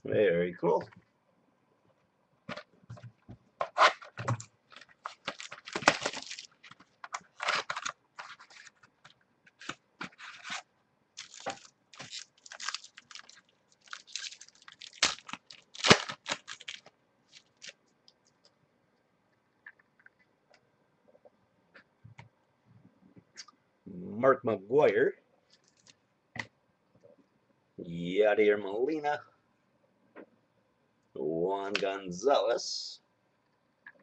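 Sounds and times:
foil wrapper crinkling: 0:03.9 - 0:08.8, 0:11.2 - 0:17.8.

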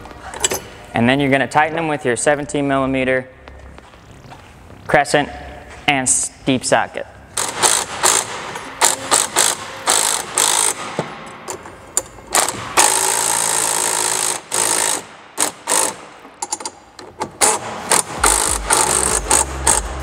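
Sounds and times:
cordless driver running: 0:17.4 - 0:20.0.

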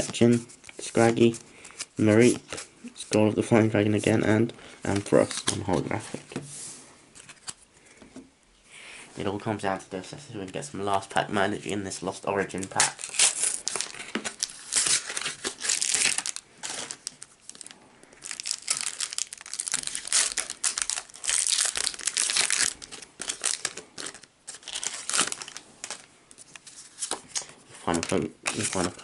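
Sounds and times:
foil packaging crinkling and tearing: 0:12.6 - 0:29.0.

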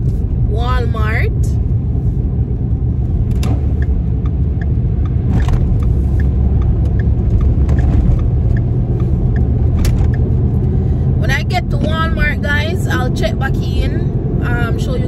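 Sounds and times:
car cabin rumble: 0:00.0 - 0:15.0
light regular ticking: 0:03.0 - 0:10.8.

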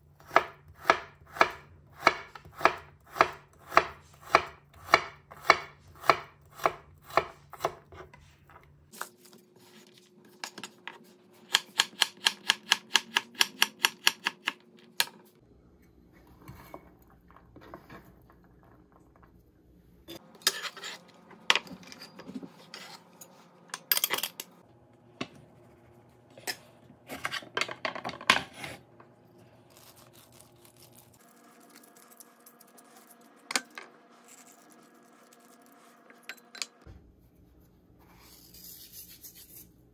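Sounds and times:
knife chopping on wooden board: 0:00.3 - 0:08.0.

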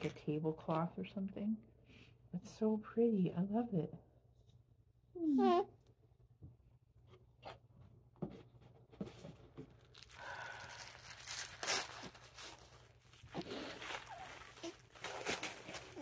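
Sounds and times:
paper rustling and tearing: 0:09.9 - 0:16.0.

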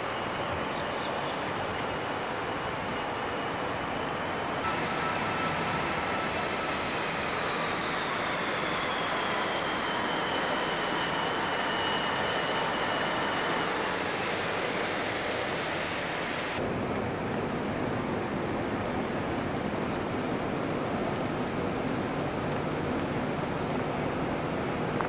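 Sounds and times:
train running noise: 0:00.0 - 0:25.0
faint whine sliding down: 0:04.6 - 0:16.6.

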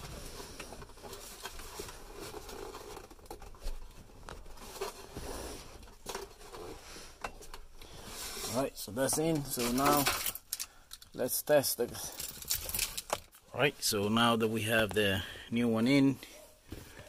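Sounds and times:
hands rustling wires: 0:00.0 - 0:13.5.

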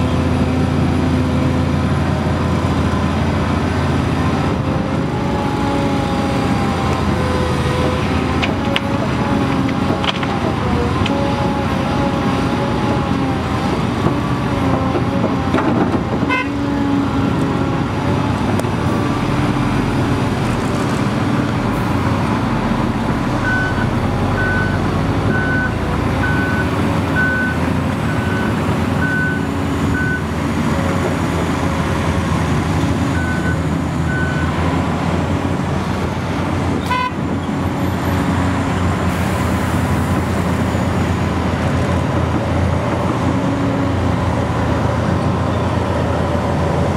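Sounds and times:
dump truck engines: 0:00.0 - 0:46.9
excavator diesel engine: 0:00.0 - 0:46.9
back-up alarm beeps: 0:23.4 - 0:30.3.

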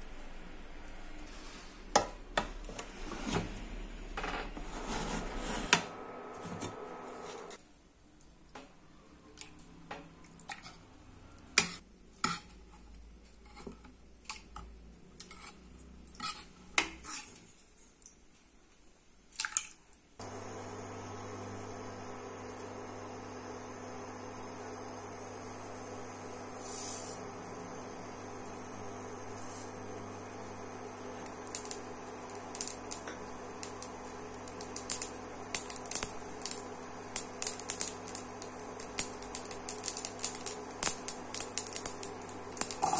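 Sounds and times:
steady hum: 0:03.4 - 0:07.6, 0:20.2 - 0:42.9
seeds popping in hot oil: 0:27.6 - 0:42.9.

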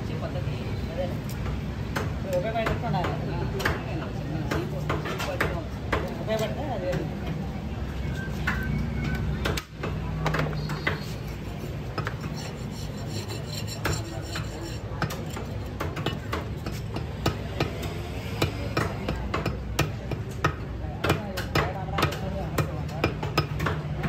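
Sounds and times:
knife scraping: 0:10.8 - 0:17.0.

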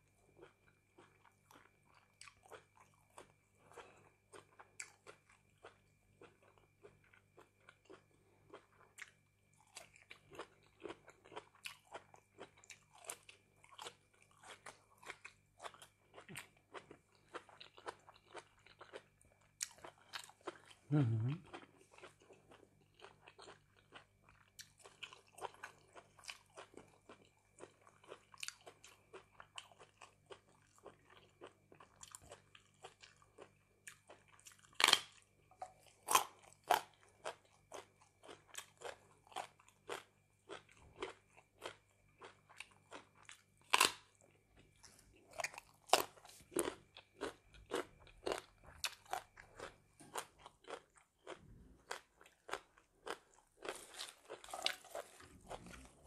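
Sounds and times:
faint electrical hum: 0:00.0 - 0:56.0
crisp vegetable crunches: 0:32.0 - 0:35.2, 0:36.0 - 0:44.2, 0:44.8 - 0:56.0.

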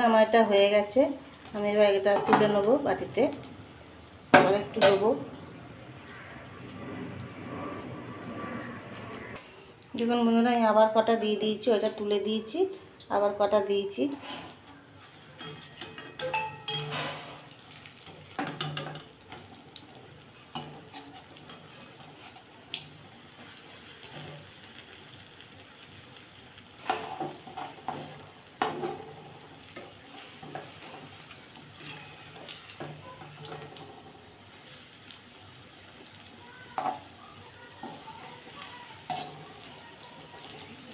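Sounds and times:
food deep-frying in hot oil: 0:00.0 - 0:40.9
metal spoon scraping a pan: 0:14.1 - 0:19.4, 0:20.3 - 0:22.8, 0:26.8 - 0:34.1, 0:37.8 - 0:40.9.

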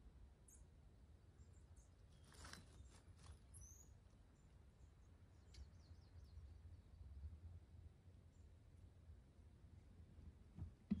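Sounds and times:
small birds chirping: 0:00.0 - 0:07.5
soft rustles: 0:02.2 - 0:03.6.

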